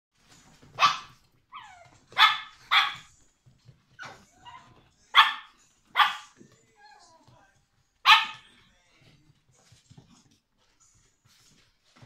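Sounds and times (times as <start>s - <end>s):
puppies barking: 0.7s - 3.1s, 4.0s - 6.4s, 8.0s - 8.4s
puppy yapping: 0.7s - 3.1s, 8.1s - 8.4s
puppy whining: 0.9s - 2.1s, 6.7s - 7.3s.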